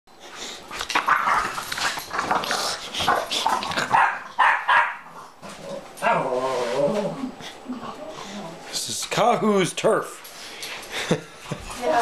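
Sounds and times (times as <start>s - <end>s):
small dogs barking and growling: 0.9s - 8.6s.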